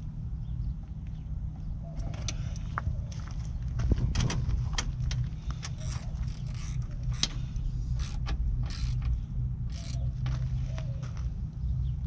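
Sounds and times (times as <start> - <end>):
steady low rumble: 0.0 - 12.0
plastic and metal clicks and scrapes: 4.3 - 10.1.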